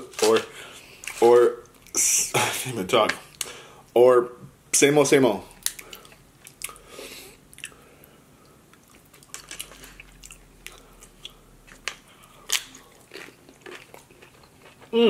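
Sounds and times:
close chewing with crunches: 0:08.7 - 0:15.0.

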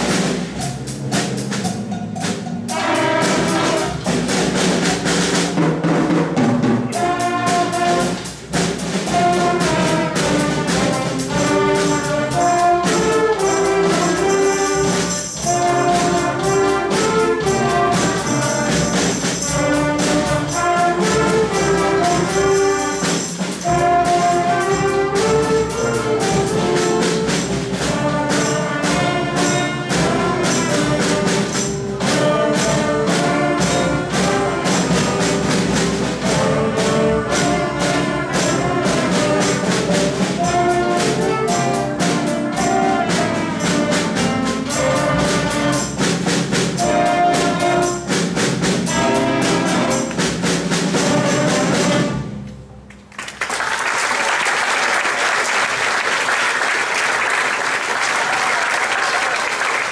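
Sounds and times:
drum strokes: 0:00.0 - 0:53.6
concert band playing: 0:00.0 - 0:59.9
audience applauding: 0:53.1 - 0:59.9.

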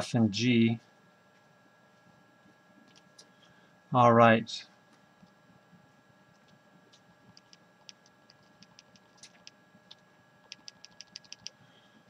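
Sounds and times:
calculator keys clicking: 0:07.3 - 0:11.6.

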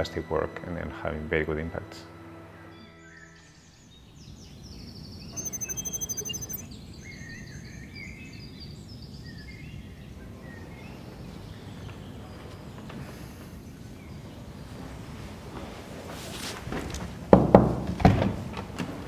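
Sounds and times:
birds chirping: 0:03.3 - 0:12.6
high-pitched pulsed trill: 0:05.4 - 0:06.7.

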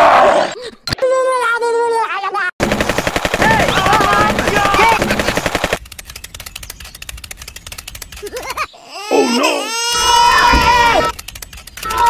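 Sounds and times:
machine-gun fire: 0:02.6 - 0:05.8.

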